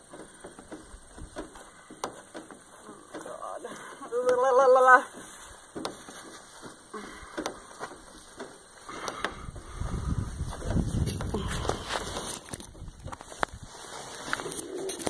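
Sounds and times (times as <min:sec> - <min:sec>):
clicks and rustles: 0:00.0 - 0:04.5, 0:10.5 - 0:15.0
hand rumbling on camera: 0:00.0 - 0:15.0
woman's wavering wordless voice: 0:03.2 - 0:05.1.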